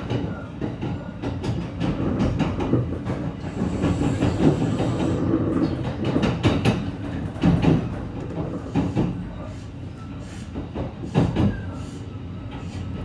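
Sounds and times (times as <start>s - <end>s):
rail joints clattering: 0.0s - 9.3s
train wheels rumbling on rail: 0.0s - 13.0s.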